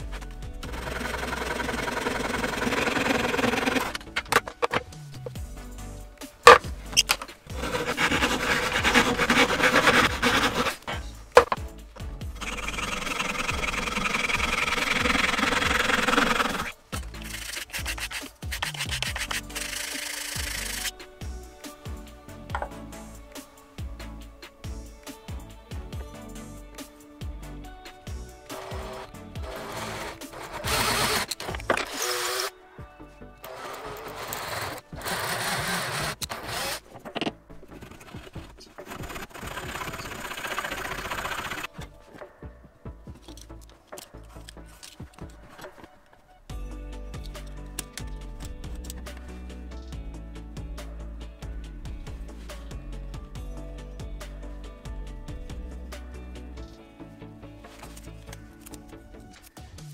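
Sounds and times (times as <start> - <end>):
background music: 0.0 - 59.9
electric drill drilling into wood: 0.6 - 4.0, 12.4 - 18.2, 19.0 - 20.9, 28.5 - 32.5, 33.5 - 36.9, 38.9 - 41.7
handsaw rasping through wood: 0.6 - 4.0, 7.5 - 11.6, 12.4 - 20.9, 28.5 - 32.5, 33.5 - 37.0, 37.7 - 41.7.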